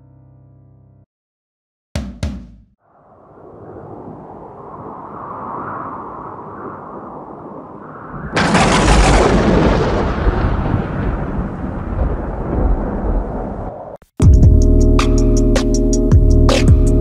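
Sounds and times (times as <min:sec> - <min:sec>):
music with steady beat: 0:02.0 - 0:02.8, 0:14.2 - 0:17.0.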